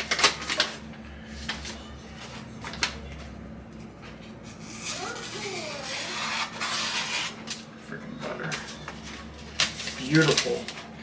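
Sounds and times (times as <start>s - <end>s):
paper rustling: 0.0s - 0.8s, 8.6s - 10.9s
knife cutting paper: 4.7s - 7.6s.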